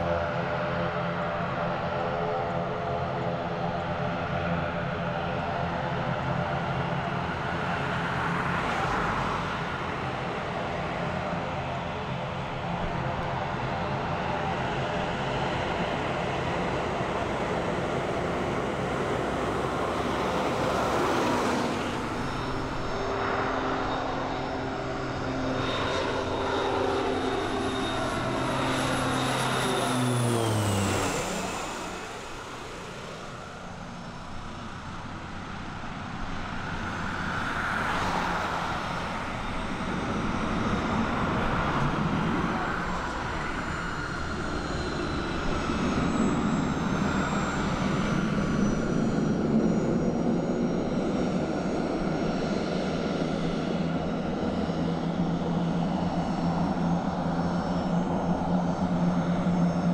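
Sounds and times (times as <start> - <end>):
jet airliner engine whine: 0.0 - 59.9
rush of engine noise: 13.9 - 59.9.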